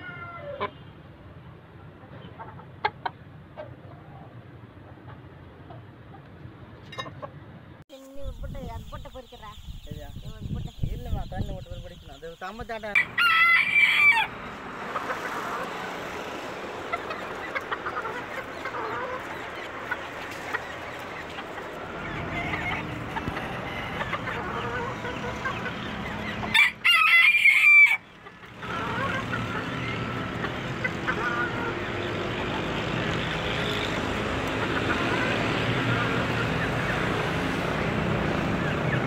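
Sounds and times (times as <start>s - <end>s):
rooster crowing: 0.0s - 0.6s, 13.0s - 14.4s, 26.5s - 28.0s.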